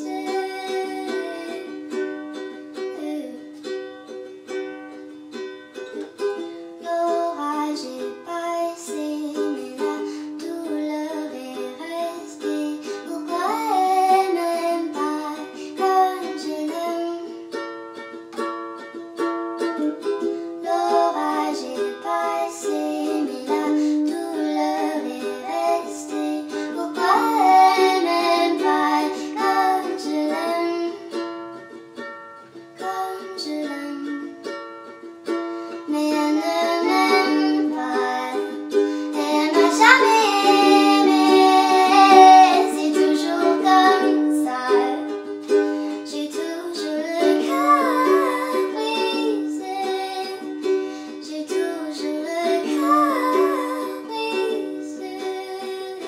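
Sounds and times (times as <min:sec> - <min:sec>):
sped-up high female singing: 0:00.0 - 0:01.8, 0:06.8 - 0:17.3, 0:20.6 - 0:31.2, 0:32.8 - 0:34.3, 0:35.9 - 0:45.2, 0:46.0 - 0:56.0
plucked-string backing: 0:00.0 - 0:56.0.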